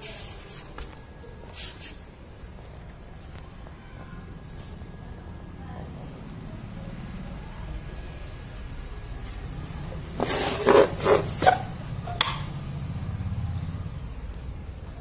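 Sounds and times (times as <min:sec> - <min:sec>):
scraping rustling noises: 0:00.0 - 0:02.3, 0:10.1 - 0:11.8.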